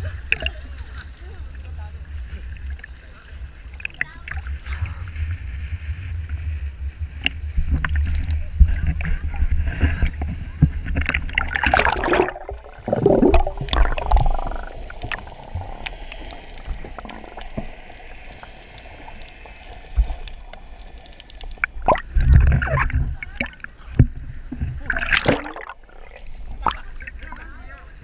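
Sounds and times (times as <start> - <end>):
water splashing and sloshing: 0.0 - 28.0
muffled underwater gurgling: 7.0 - 28.0.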